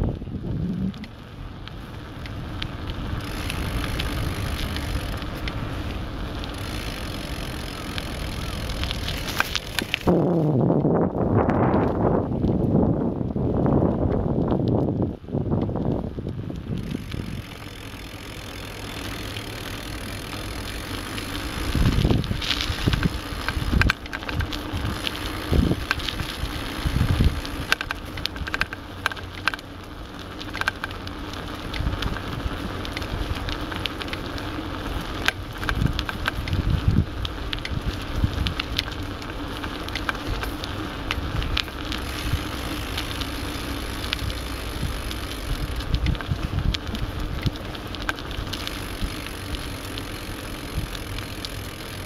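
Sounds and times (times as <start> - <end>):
camera handling rumble: 6.5 - 12.7, 15.6 - 29.7.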